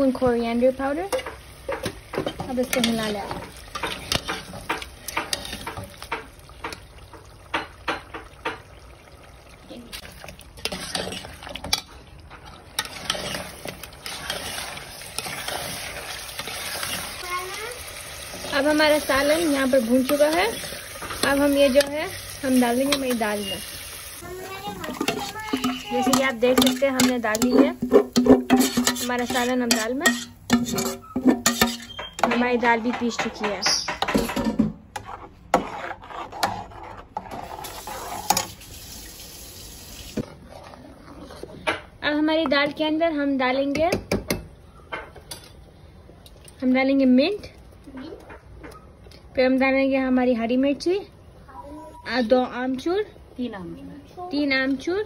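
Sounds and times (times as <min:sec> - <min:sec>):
wooden spoon scraping a pot: 0:01.1 - 0:06.8, 0:09.9 - 0:17.2, 0:18.3 - 0:23.7, 0:24.4 - 0:38.6, 0:40.2 - 0:41.9
meat frying sizzle: 0:12.8 - 0:29.5, 0:37.4 - 0:40.2
metal spoon knocking on pot: 0:24.9 - 0:34.8.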